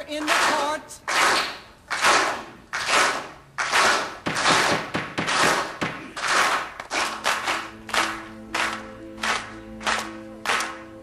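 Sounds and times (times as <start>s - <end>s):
crowd clapping in unison: 0.0s - 11.0s
soft sustained music notes: 7.1s - 11.0s.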